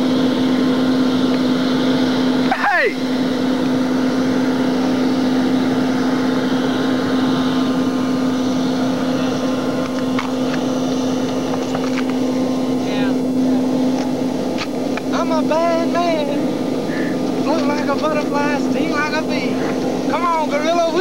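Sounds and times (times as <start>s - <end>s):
engine drone: 0.0s - 21.0s.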